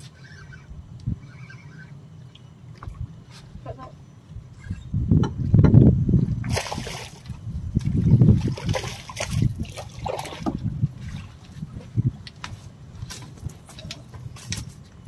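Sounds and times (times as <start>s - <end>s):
water splashing beside boat: 6.4s - 14.7s.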